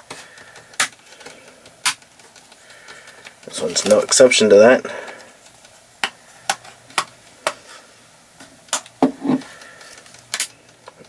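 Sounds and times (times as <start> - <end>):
plastic clips popping: 0.0 - 4.2, 8.6 - 9.2.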